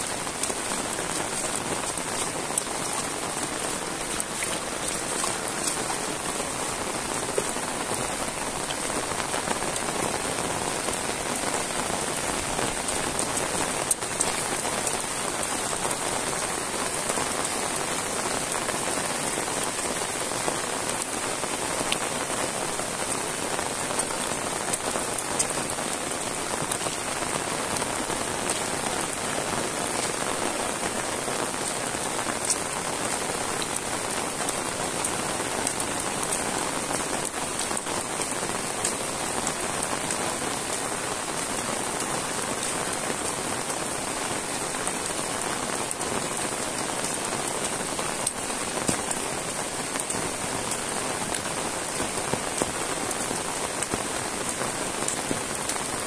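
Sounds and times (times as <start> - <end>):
sharp raindrop hits: 0.0 - 43.5
heavy rain on asphalt: 0.0 - 56.0.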